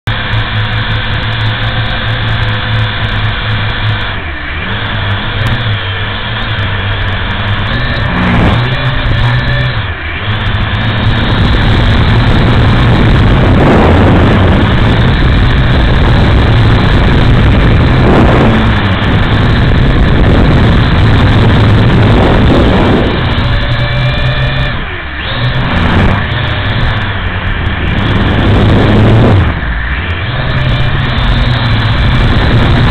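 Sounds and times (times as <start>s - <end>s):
drone propellers whirring: 0.1s - 32.9s.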